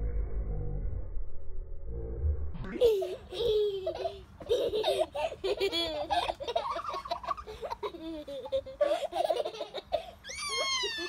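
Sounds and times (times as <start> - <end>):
children laughing: 2.7 - 11.0
child squealing: 10.2 - 11.0.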